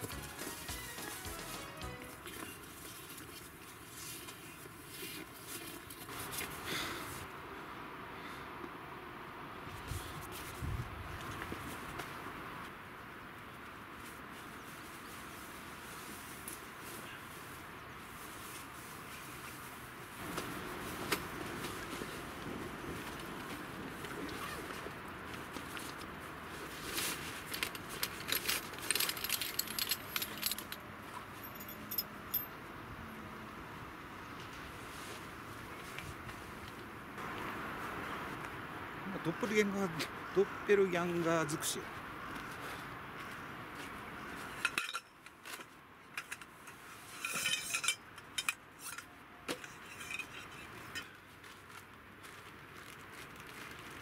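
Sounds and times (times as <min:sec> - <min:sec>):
camp chair frame clinking: 0:26.8 - 0:32.6, 0:44.5 - 0:51.2.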